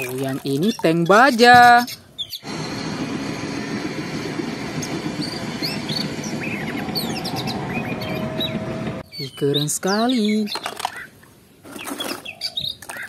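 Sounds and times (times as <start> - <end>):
tank engine and tracks: 2.4 - 9.0.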